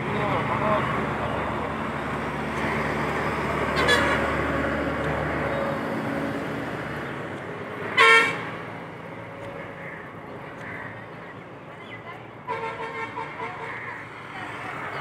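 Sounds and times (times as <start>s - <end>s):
passing vehicle rumble: 0.0s - 11.6s.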